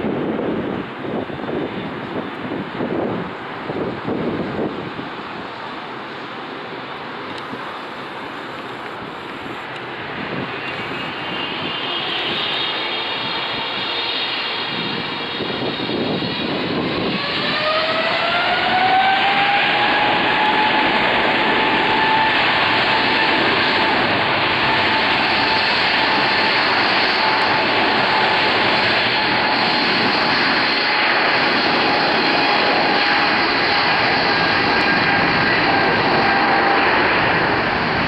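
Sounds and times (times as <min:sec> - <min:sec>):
high-pitched engine whine: 0:00.1 - 0:38.0
jet engines spooling up: 0:03.0 - 0:38.0.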